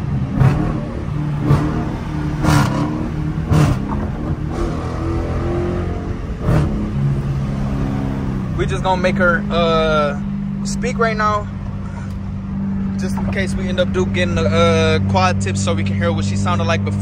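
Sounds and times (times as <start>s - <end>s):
car exhaust drone from cabin: 0.0s - 17.0s.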